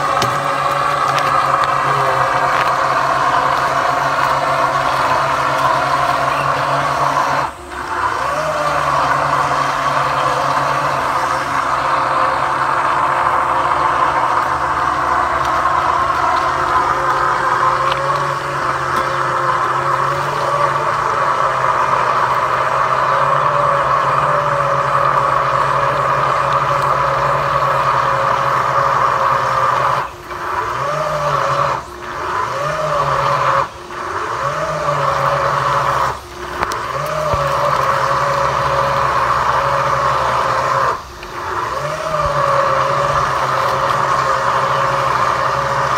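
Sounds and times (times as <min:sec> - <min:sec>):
motor running: 0:00.0 - 0:45.9.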